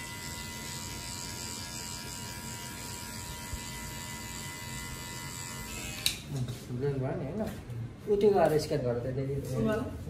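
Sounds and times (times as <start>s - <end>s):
hair clipper buzzing: 0.0s - 6.3s.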